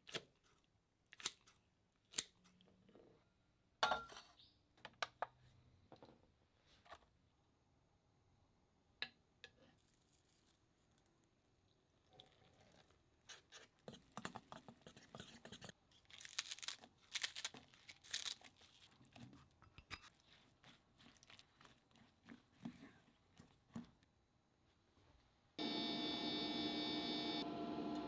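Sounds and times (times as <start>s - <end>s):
batter mixing clicks and scrapes: 12.6s - 15.8s, 18.4s - 24.0s
spatula scraping bowl: 12.6s - 15.8s, 20.0s - 24.0s.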